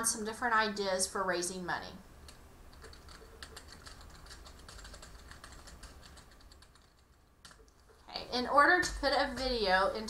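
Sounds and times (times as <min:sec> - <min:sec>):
keyboard typing: 0:02.2 - 0:10.0.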